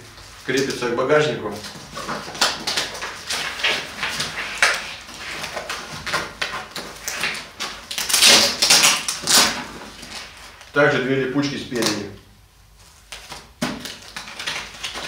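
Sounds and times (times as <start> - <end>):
velcro straps ripping: 2.0 - 10.7.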